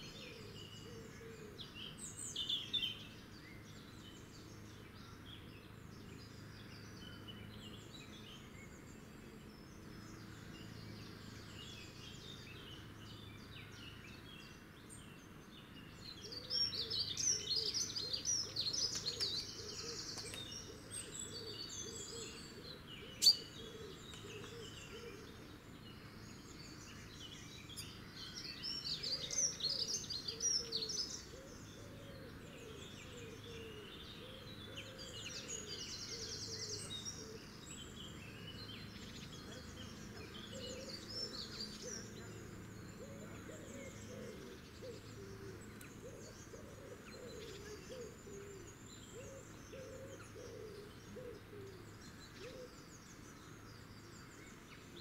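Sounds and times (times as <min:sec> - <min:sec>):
songbirds chirping and trilling: 0:00.0 - 0:55.0.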